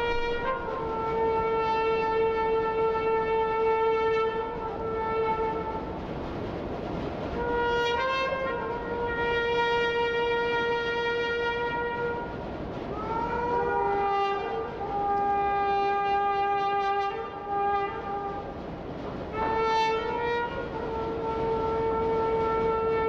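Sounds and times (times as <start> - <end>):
brass instrument long held notes: 0.0 - 6.1, 7.3 - 18.7, 19.3 - 23.0.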